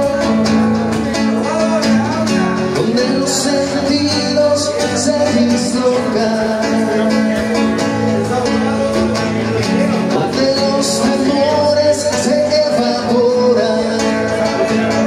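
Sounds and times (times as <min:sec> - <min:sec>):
classical guitar strumming: 0:00.0 - 0:15.0.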